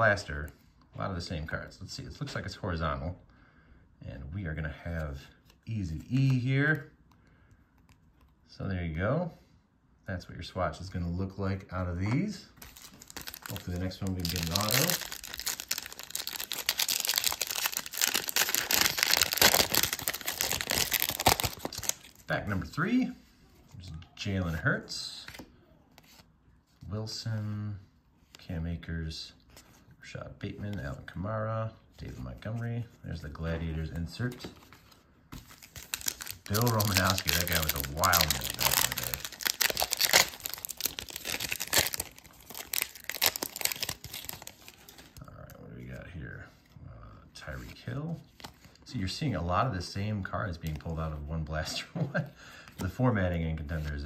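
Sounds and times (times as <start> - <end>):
foil wrapper tearing and crinkling: 12.7 - 22.2, 35.5 - 45.1.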